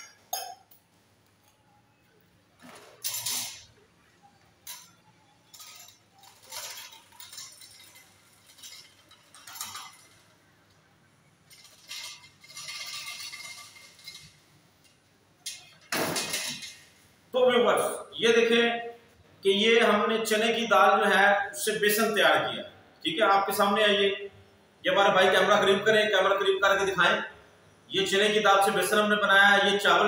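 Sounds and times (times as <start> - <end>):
metal clinks knocks and scrapes: 4.7 - 10.3, 11.5 - 14.4.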